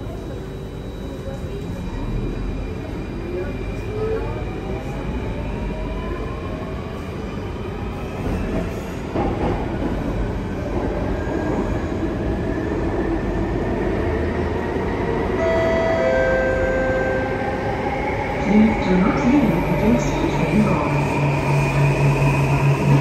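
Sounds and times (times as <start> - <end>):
train wheels rumbling in tunnel: 0.0 - 23.0.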